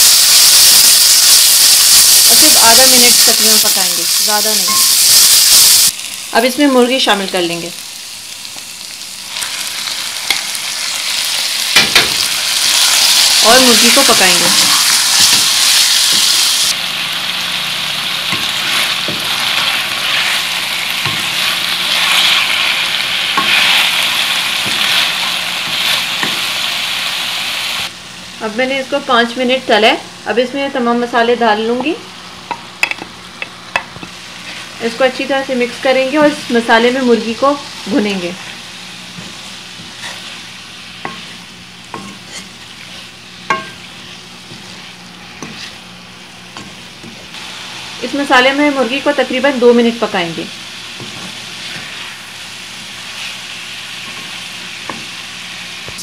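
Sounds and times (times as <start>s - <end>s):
chicken sizzling in hot oil: 0.0s - 28.0s, 32.8s - 56.0s
spatula scraping and knocking pan: 39.1s - 45.9s.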